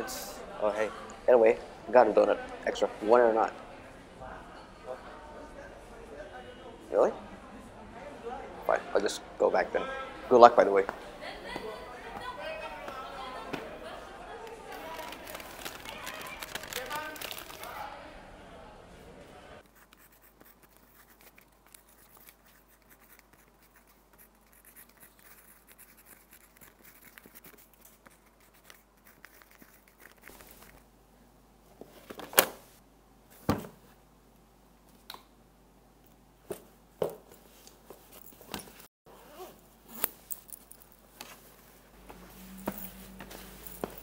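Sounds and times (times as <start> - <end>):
backpack being handled: 36.6 - 44.0
zipper: 39.1 - 40.7.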